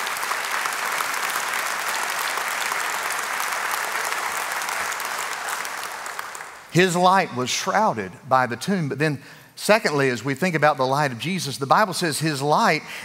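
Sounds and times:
congregation applauding: 0.0 - 7.3.

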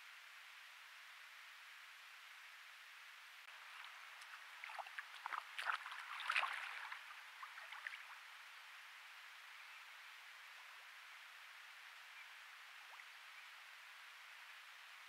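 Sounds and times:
microphone hiss: 0.0 - 15.0
stream water splashing: 3.5 - 8.9.

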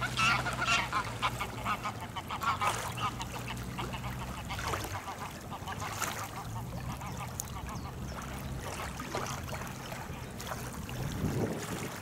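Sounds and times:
geese honking: 0.0 - 7.9.

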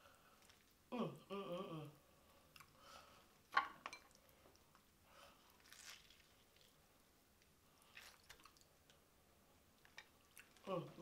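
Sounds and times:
chewing: 7.8 - 8.7, 9.8 - 10.7.

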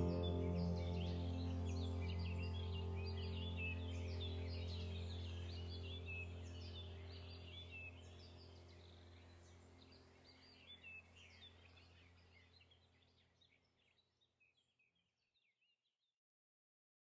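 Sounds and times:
ambient background music drone: 0.0 - 10.4
small birds chirping: 0.0 - 15.8.

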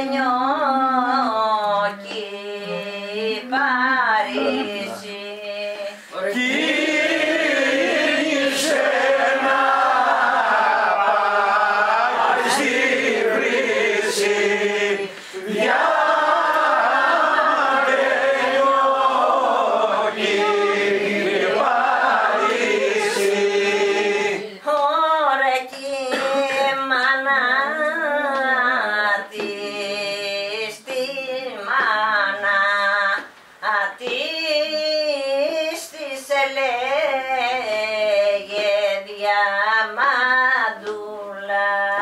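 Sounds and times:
group singing folk song: 1.0 - 35.8.

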